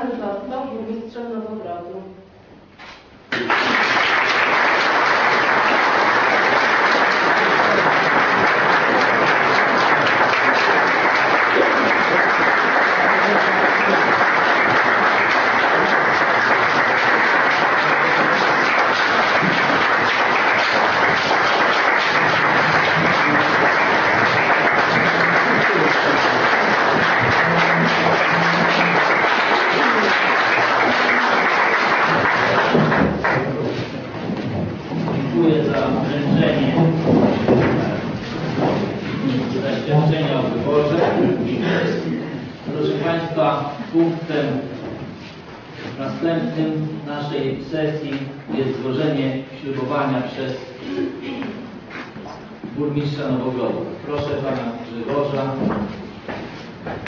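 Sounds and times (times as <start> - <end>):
crowd applauding: 3.3 - 39.6.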